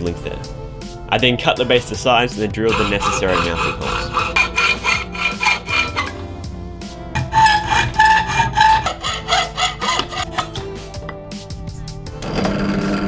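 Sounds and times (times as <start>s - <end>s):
background music: 0.0s - 13.0s
hacksaw rasping through metal: 2.5s - 6.2s, 7.2s - 10.7s.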